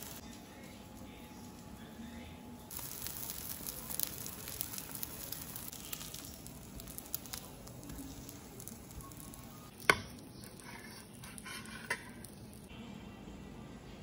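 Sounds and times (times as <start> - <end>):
food sizzling in oil: 0.0 - 0.2, 2.7 - 12.7.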